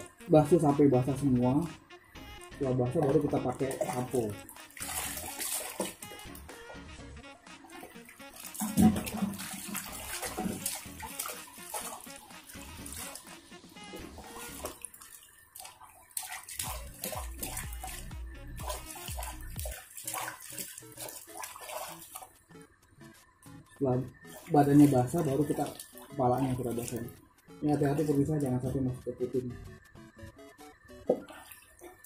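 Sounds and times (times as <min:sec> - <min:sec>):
water splashing and trickling: 0:00.0 - 0:29.8, 0:30.4 - 0:32.0
water poured from a scoop: 0:08.3 - 0:12.2.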